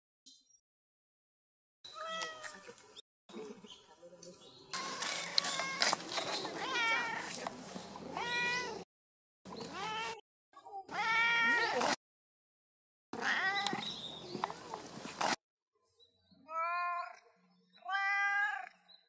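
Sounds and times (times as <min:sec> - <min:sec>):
cat meowing: 0:01.9 - 0:02.6, 0:06.6 - 0:07.3, 0:08.1 - 0:08.8, 0:13.2 - 0:13.8.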